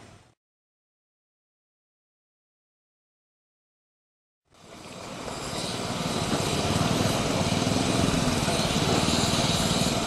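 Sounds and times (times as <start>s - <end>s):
small locomotive engine pulsing: 4.5s - 10.0s
locomotive hiss: 4.6s - 10.0s.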